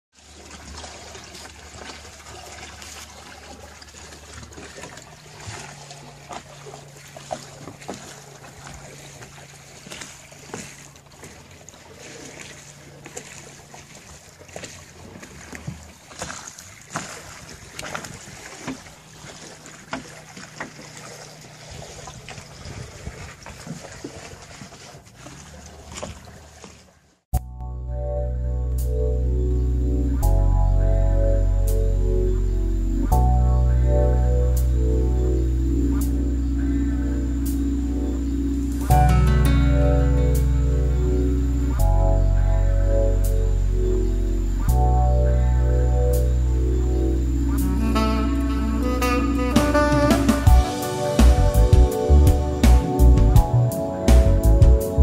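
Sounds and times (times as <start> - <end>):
water slapping against hull: 0.1 - 27.3
steady low hum: 27.5 - 55.0.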